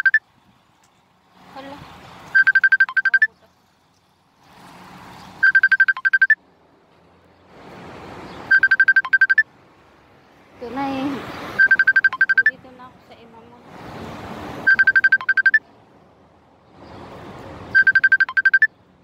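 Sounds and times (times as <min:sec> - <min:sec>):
electronic ringtone beeps: 0:00.0 - 0:00.2, 0:02.4 - 0:03.3, 0:05.4 - 0:06.4, 0:08.5 - 0:09.5, 0:11.6 - 0:12.6, 0:14.6 - 0:15.6, 0:17.7 - 0:18.8.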